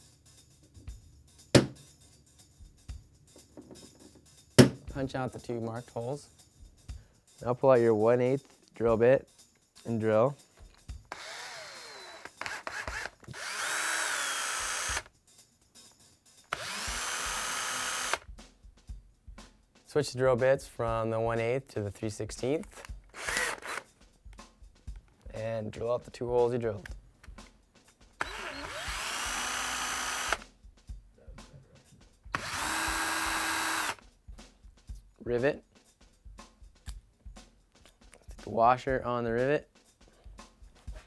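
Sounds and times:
drill clicks: 11.1s - 15.1s, 16.5s - 18.2s, 22.7s - 23.9s, 28.2s - 30.4s, 32.3s - 34.0s
power drill whining: 11.1s - 15.1s, 16.5s - 18.2s, 23.1s - 23.8s, 28.2s - 30.4s, 32.4s - 34.0s.

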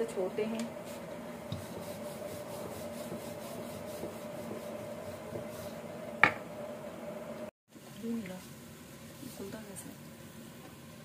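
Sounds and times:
steady low hum: 0.0s - 7.5s
rolling pin rolling dough: 0.8s - 6.4s.

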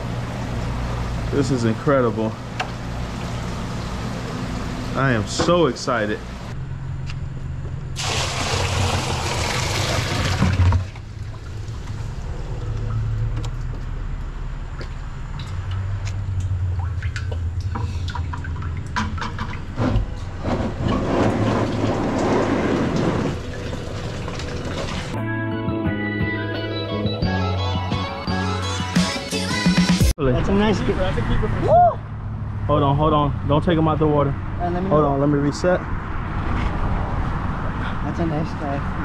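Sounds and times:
steady low hum: 0.0s - 8.0s
water sloshing in bucket: 8.0s - 12.2s
music: 25.2s - 30.1s.

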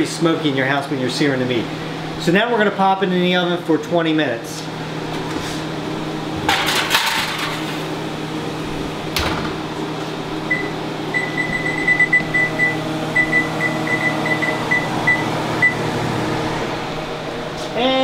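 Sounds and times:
fan hum: 0.0s - 18.0s
foil pan clattering: 6.5s - 7.6s
oven door knocking shut: 9.2s - 9.6s.

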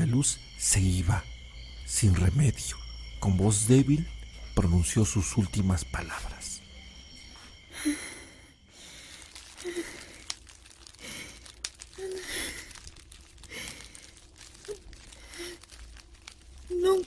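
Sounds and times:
woman breathing weakly and sighing: 7.6s - 14.2s.

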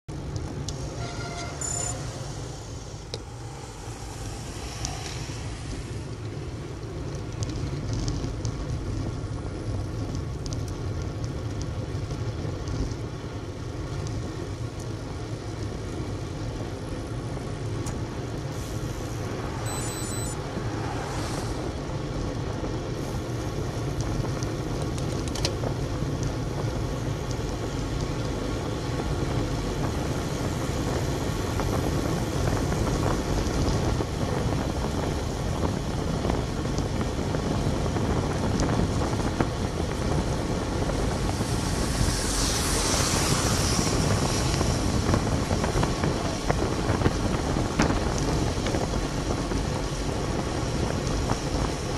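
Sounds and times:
car passing: 0.7s - 7.6s, 18.6s - 22.7s, 39.0s - 46.6s
tyre noise on tarmac: 3.5s - 51.9s
wind on microphone: 28.8s - 51.9s.

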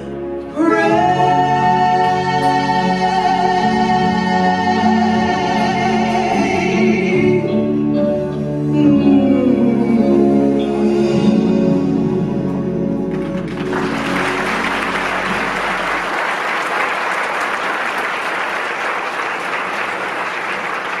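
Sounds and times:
live band held chord: 0.0s - 21.0s
audience applause: 13.1s - 21.0s.

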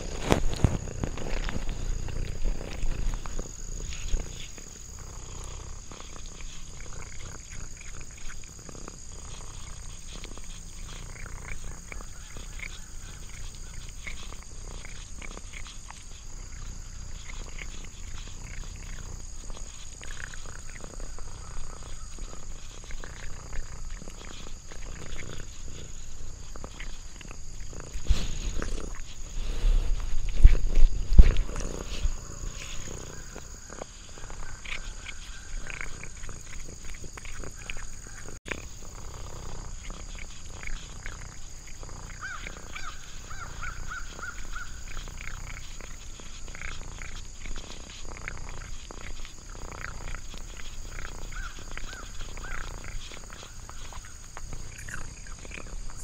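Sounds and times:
cat licking and chewing: 0.0s - 56.0s
insects trilling: 0.0s - 56.0s.

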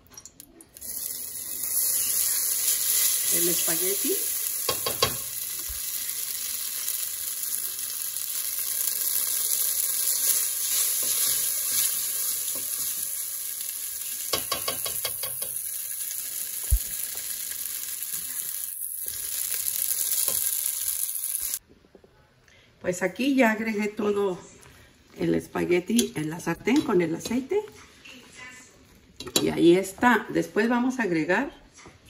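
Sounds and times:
spaghetti sizzling in oil: 0.8s - 21.6s.

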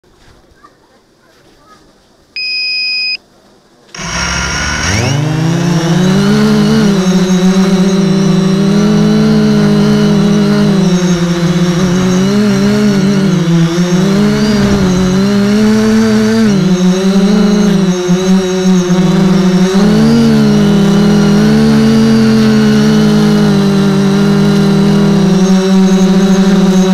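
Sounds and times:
short electronic beep: 2.4s - 3.2s
drone motors whining: 3.9s - 26.9s.

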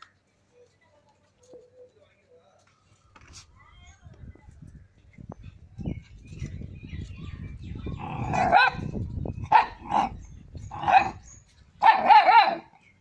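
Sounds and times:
dog barking high-pitched: 8.3s - 8.9s, 9.5s - 10.1s, 10.8s - 11.2s, 11.8s - 12.7s.

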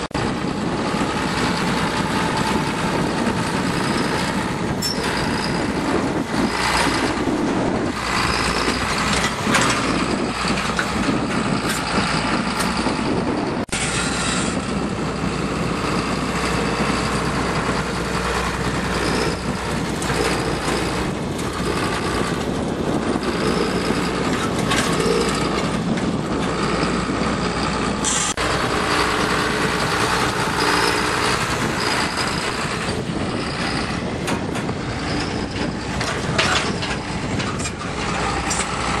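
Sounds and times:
machinery knocking and rattling: 0.0s - 39.0s
tractor diesel engine running: 0.0s - 39.0s.

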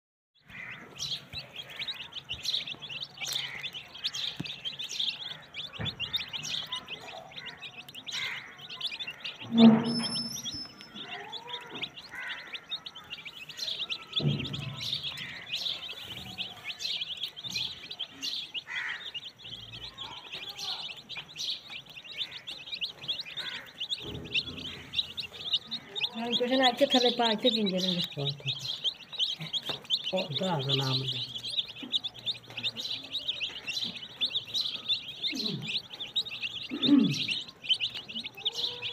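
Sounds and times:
chicks peeping: 0.4s - 38.9s.

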